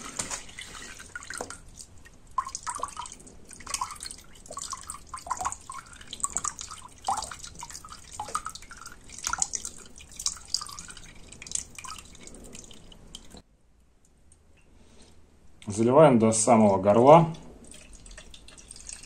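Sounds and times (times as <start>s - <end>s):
drops splashing into liquid: 0.1s - 13.4s.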